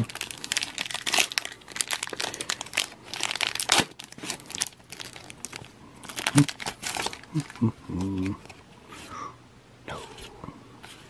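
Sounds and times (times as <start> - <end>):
foil wrapper crinkling and tearing: 0.0 - 8.6.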